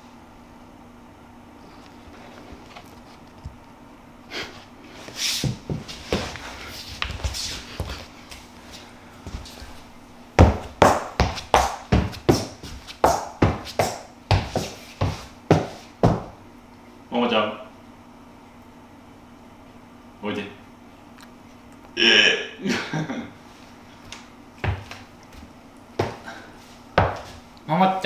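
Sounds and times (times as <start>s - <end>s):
rustling and scuffing: 1.8s - 3.6s, 4.9s - 16.4s, 23.4s - 27.5s
slipper footsteps on wooden floor: 5.4s - 16.4s, 24.0s - 27.5s.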